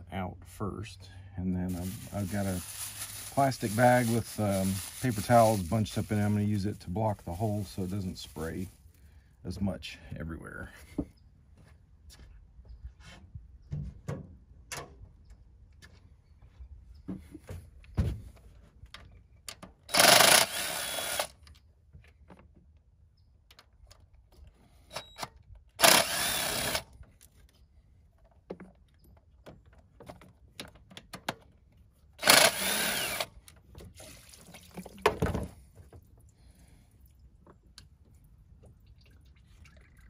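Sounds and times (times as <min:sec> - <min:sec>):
cordless power tool spinning: 0:19.9 - 0:21.4, 0:25.8 - 0:26.9, 0:32.2 - 0:33.4.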